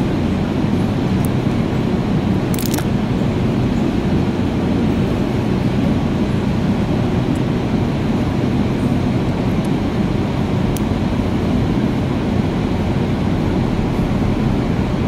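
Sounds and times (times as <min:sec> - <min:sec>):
low rumble: 0:13.3 - 0:15.0.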